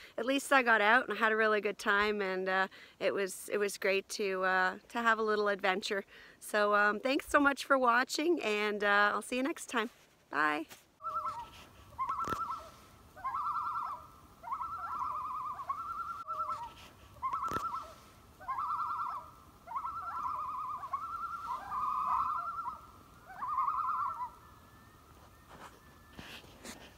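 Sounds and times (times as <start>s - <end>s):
wavering bird-like call: 11.0s - 26.8s.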